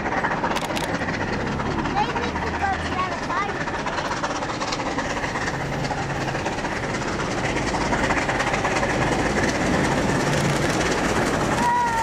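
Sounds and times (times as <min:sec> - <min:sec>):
steam locomotive exhaust: 0:00.0 - 0:12.0
train running noise: 0:00.0 - 0:12.0.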